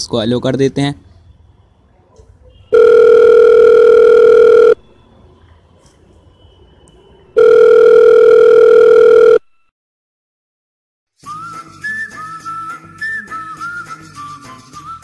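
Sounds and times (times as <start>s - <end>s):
telephone ringback tone: 2.7s - 4.8s, 7.4s - 9.5s.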